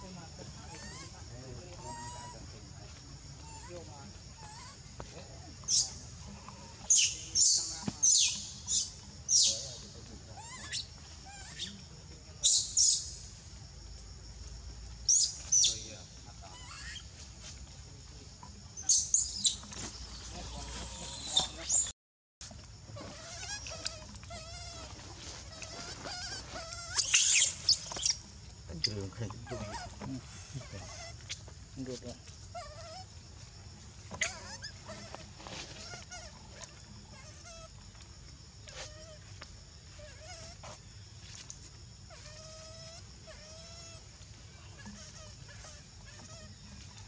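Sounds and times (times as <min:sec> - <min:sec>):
baby monkey squeaky crying: 0:00.6 - 0:01.2, 0:01.8 - 0:02.4, 0:03.4 - 0:04.8, 0:05.6 - 0:11.8, 0:12.4 - 0:13.2, 0:15.1 - 0:15.8, 0:16.4 - 0:17.1, 0:18.8 - 0:21.9, 0:23.0 - 0:28.3, 0:29.4 - 0:31.4, 0:32.5 - 0:33.1, 0:34.1 - 0:37.8, 0:39.9 - 0:40.8, 0:42.1 - 0:44.1, 0:44.7 - 0:46.9
monkey harsh scream: 0:00.6 - 0:01.2, 0:01.8 - 0:02.4, 0:03.4 - 0:04.8, 0:10.4 - 0:11.8, 0:16.5 - 0:17.1, 0:18.9 - 0:21.9, 0:23.0 - 0:28.2, 0:29.4 - 0:31.4, 0:32.5 - 0:33.1, 0:34.1 - 0:37.8, 0:42.1 - 0:44.1, 0:44.7 - 0:46.6.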